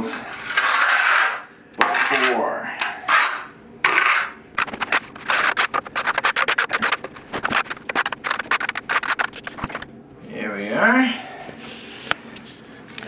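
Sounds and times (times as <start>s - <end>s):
trowel scraping mortar on tile: 0.4s - 2.4s, 3.0s - 9.8s.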